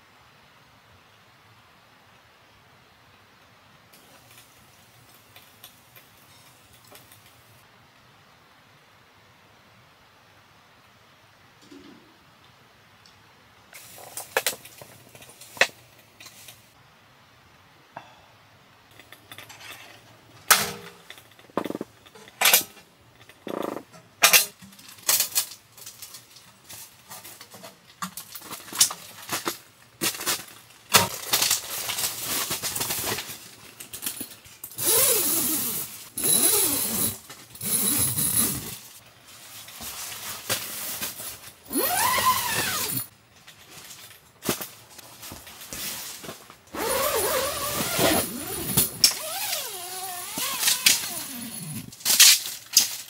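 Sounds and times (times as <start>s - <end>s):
metal lid clanking: 20.4s - 22.8s
squeaky scraping and rubbing: 46.8s - 51.9s.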